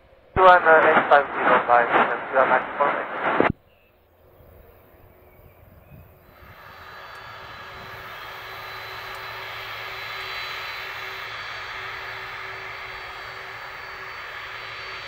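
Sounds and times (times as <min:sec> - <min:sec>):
jet engines rushing with high whine: 0:00.0 - 0:15.0.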